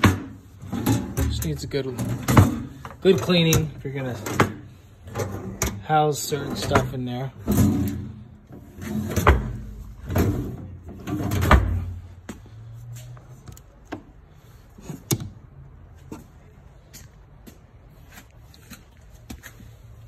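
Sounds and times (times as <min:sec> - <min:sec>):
drawer sliding and banging: 0:00.0 - 0:05.8, 0:06.4 - 0:12.1.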